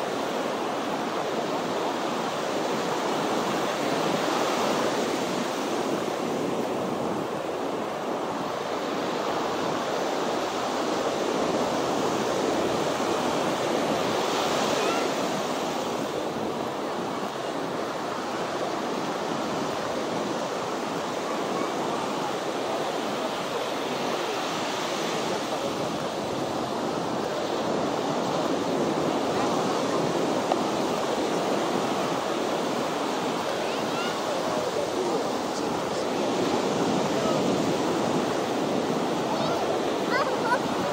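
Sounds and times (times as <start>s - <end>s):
ocean surf breaking: 0.0s - 40.9s.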